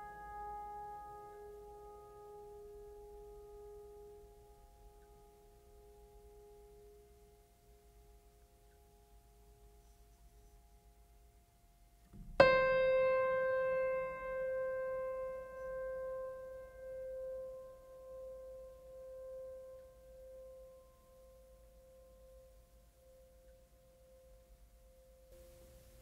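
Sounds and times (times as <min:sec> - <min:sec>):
slow solo piano: 0:00.0 - 0:07.1, 0:12.0 - 0:22.5.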